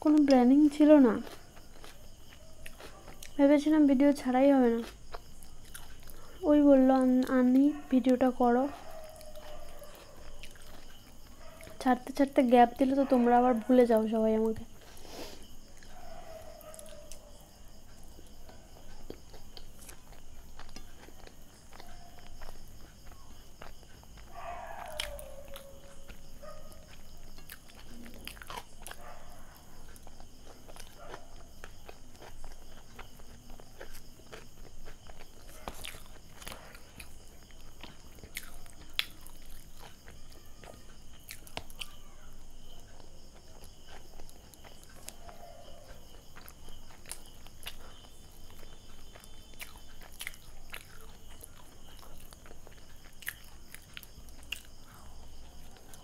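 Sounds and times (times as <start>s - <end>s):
chewing soft food: 0.0s - 56.0s.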